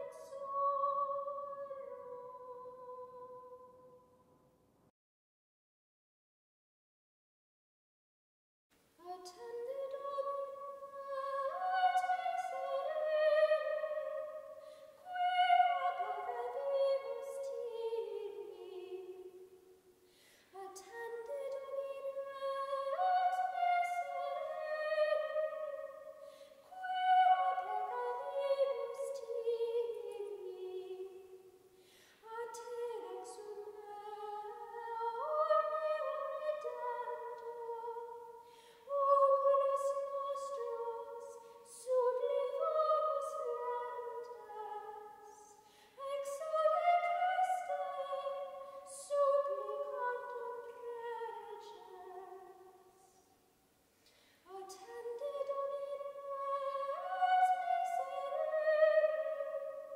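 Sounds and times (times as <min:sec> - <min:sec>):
woman singing chant: 0:00.0 - 0:03.7, 0:09.0 - 0:19.3, 0:20.6 - 0:31.2, 0:32.2 - 0:38.2, 0:38.9 - 0:52.7, 0:54.5 - 0:59.9
singer breathing: 0:14.6 - 0:15.0, 0:20.0 - 0:20.6, 0:26.2 - 0:26.7, 0:31.7 - 0:32.3, 0:38.4 - 0:38.9, 0:45.6 - 0:46.0, 0:54.0 - 0:54.5.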